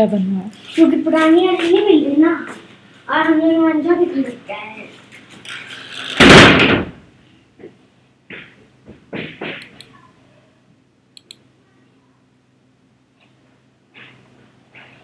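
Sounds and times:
scuffing noises: 0.5 - 3.4, 13.2 - 15.0
computer mouse clicks: 11.2 - 11.4.

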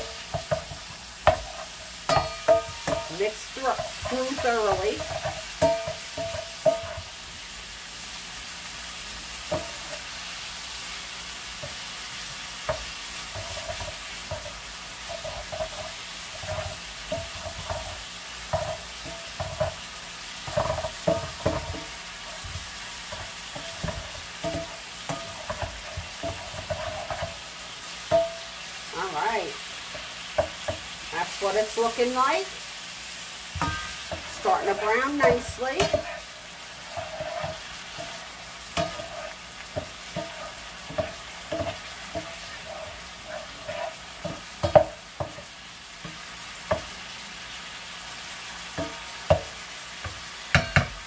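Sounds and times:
meat sizzling in skillet: 0.0 - 51.0
plastic spatula scraping pan: 34.2 - 44.5.

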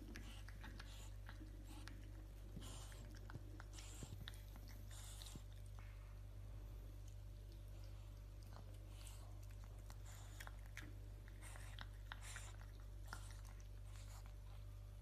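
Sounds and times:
dog crunching kibble: 7.5 - 14.4.

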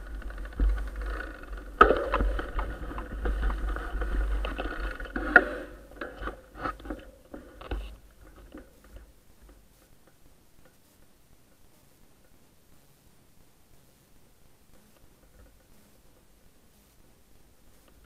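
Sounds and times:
low rumble on microphone: 0.0 - 9.4
mountain bike rattling and knocking: 0.0 - 10.2.

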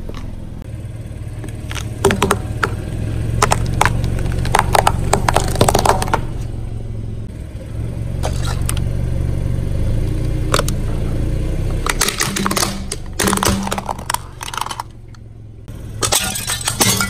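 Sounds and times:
car engine idling: 0.0 - 17.0
plastic toy cracking under tyre: 3.4 - 6.2, 11.9 - 15.0.

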